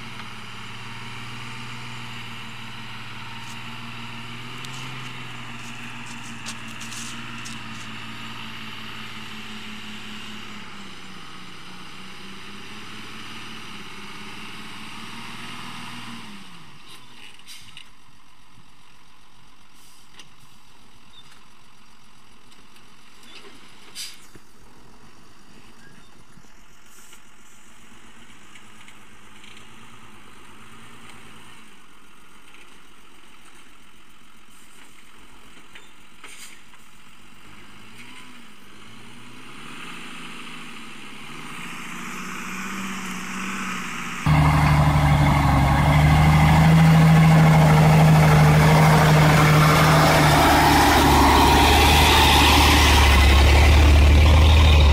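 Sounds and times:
truck engine running: 44.0 - 54.9
faint steady rumble: 44.2 - 54.9.

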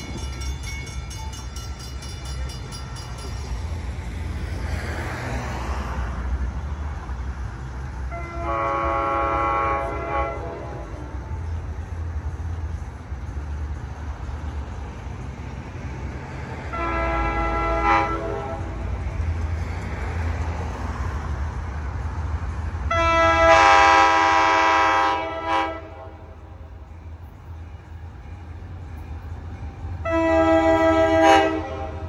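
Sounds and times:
train low rumble: 0.0 - 32.0
train horn blasts: 8.0 - 11.5, 16.6 - 19.0, 22.9 - 26.6, 30.0 - 32.0.

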